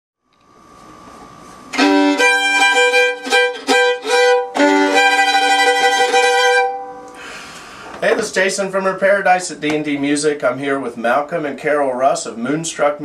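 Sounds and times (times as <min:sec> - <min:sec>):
bowed violin: 0:01.7 - 0:07.2.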